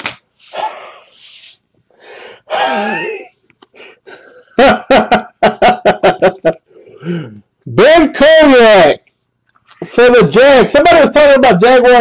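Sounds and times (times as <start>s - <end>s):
man making throaty bursts: 0.4s - 4.0s.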